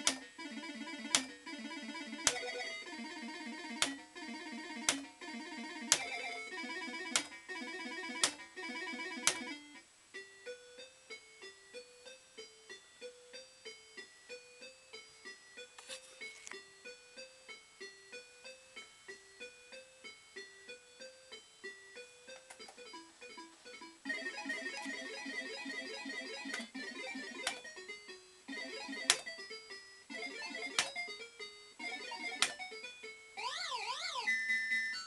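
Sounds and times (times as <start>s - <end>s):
fruit machine beeping tune: 0.0s - 10.8s, 21.7s - 35.0s.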